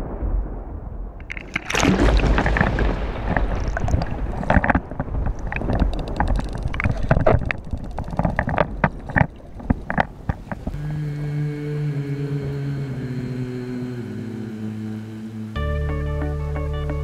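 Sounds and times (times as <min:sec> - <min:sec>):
muffled underwater rushing water: 0:00.0 - 0:15.6
sharp clicks and knocks: 0:01.2 - 0:10.8.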